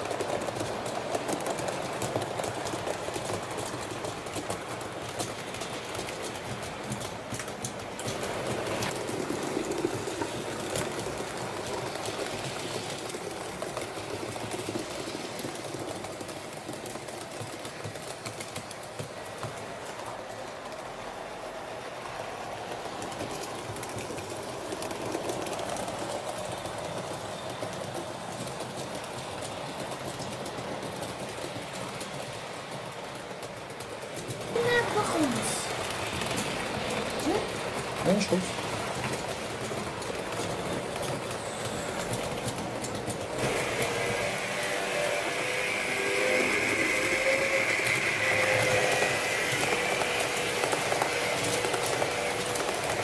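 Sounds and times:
faint clicking of wheels: 0:00.0 - 0:53.0
model train motor whirring: 0:25.0 - 0:53.0.

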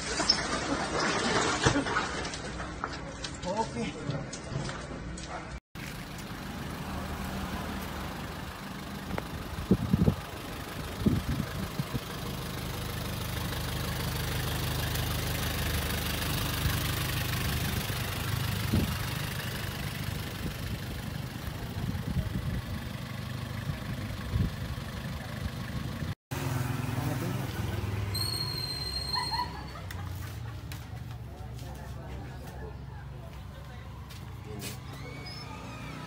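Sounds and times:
vehicle engine idling: 0:05.8 - 0:36.0.

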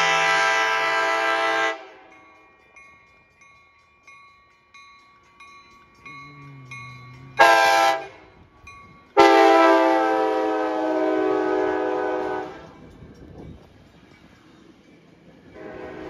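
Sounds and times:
train horn blasts: 0:00.0 - 0:02.1, 0:07.3 - 0:08.3, 0:09.2 - 0:12.8, 0:15.5 - 0:16.0
crossing bells ringing: 0:00.0 - 0:16.0.

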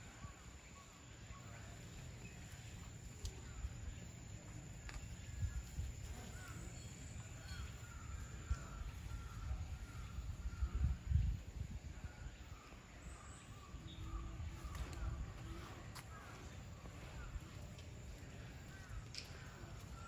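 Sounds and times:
faint bird chirps: 0:00.0 - 0:20.0.

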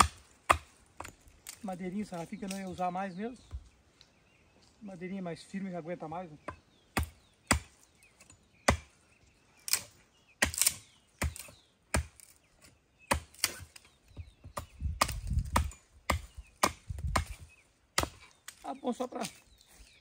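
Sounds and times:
sharp blows on wooden stakes: 0:00.0 - 0:01.7, 0:09.6 - 0:12.5, 0:13.1 - 0:18.6.

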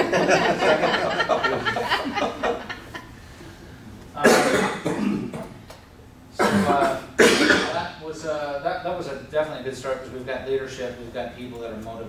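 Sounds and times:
voices chuckling: 0:00.0 - 0:03.2
person coughing loudly: 0:04.2 - 0:05.6, 0:06.4 - 0:07.9.

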